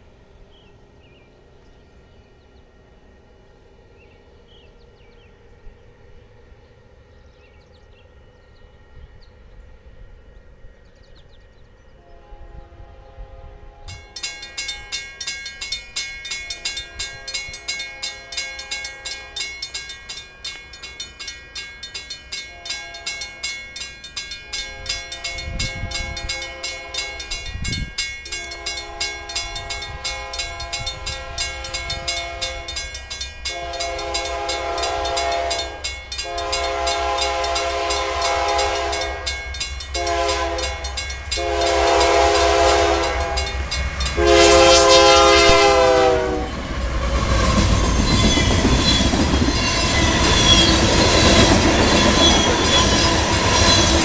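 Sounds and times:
locomotive air horn blasts: 12.0s - 14.2s, 22.5s - 23.4s, 24.6s - 27.6s, 28.3s - 32.8s, 33.5s - 39.4s, 40.0s - 46.6s.

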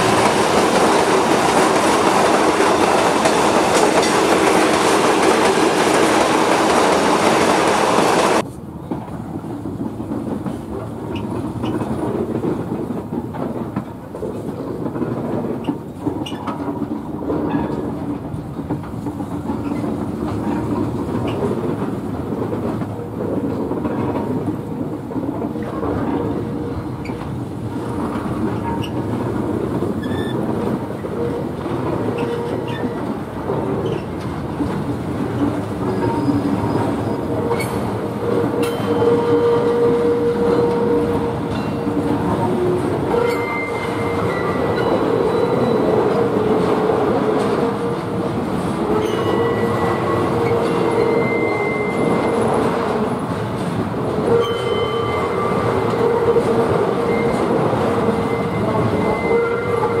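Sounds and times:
train wheels rumbling on rails: 0.0s - 60.0s
high wheel squeals: 54.4s - 60.0s.

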